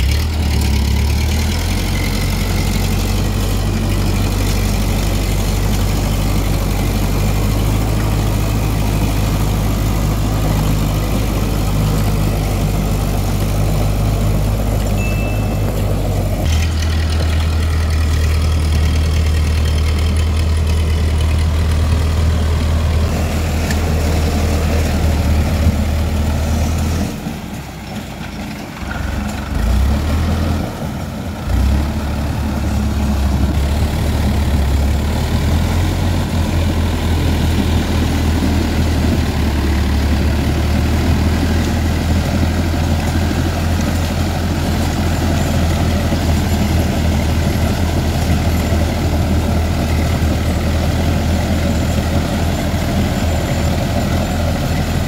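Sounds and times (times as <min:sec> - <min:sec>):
tractor diesel engine droning: 0:00.0 - 0:55.0.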